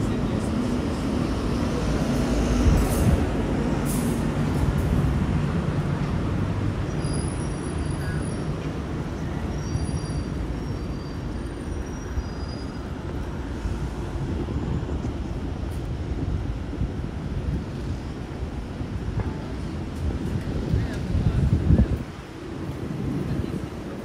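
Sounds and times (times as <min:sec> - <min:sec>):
vehicle rumbling: 0:00.0 - 0:24.0
faint high squeals: 0:06.9 - 0:08.5, 0:09.1 - 0:13.0.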